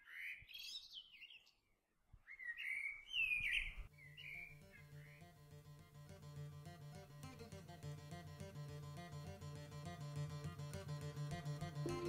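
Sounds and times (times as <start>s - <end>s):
songbird chirping and whistling: 2.2s - 5.1s
plucked-string music: 3.9s - 12.0s.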